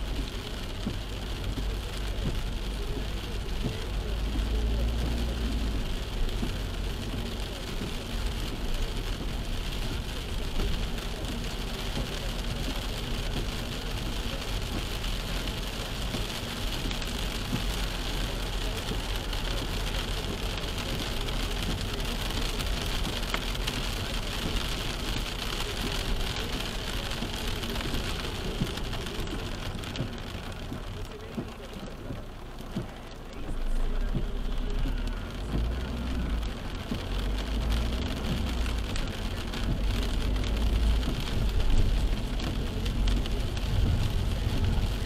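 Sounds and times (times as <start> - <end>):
heavy rain on a car: 0.0 - 45.0
tyres on wet road: 0.0 - 45.0.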